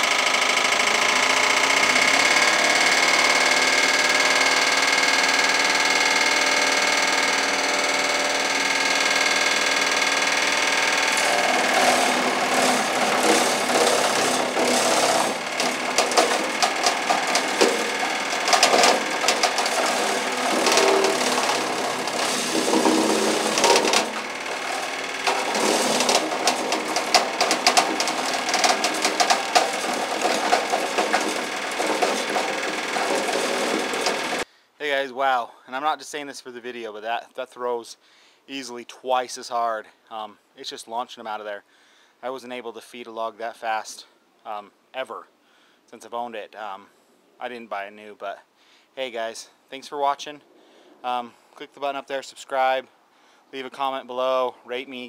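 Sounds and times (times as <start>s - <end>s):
branches cracking in chipper: 0.0s - 34.4s
wood chipper impeller whine: 0.0s - 34.4s.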